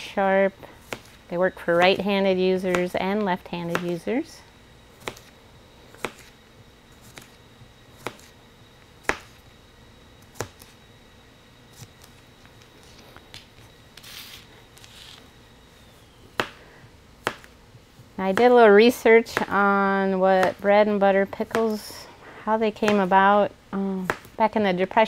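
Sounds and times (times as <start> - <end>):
rustle of slices: 14.0 - 15.2.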